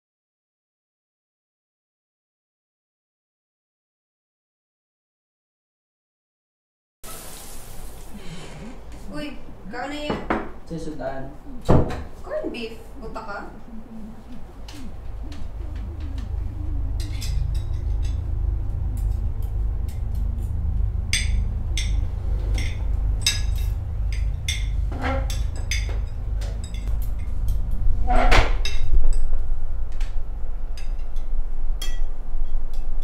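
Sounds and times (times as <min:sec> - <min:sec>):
steady deep drone: 0:13.0 - 0:33.0.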